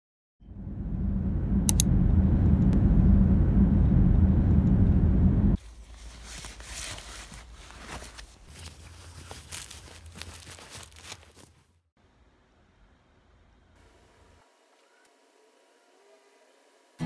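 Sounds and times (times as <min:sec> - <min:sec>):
car road and engine rumble: 0:00.4 - 0:05.7
cloth and fabric bag rustling: 0:05.6 - 0:11.6.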